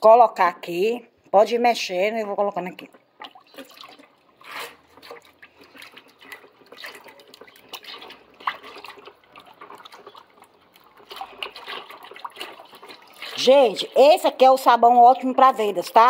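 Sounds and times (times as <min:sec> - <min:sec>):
liquid splashing and sloshing: 0:02.9 - 0:16.0.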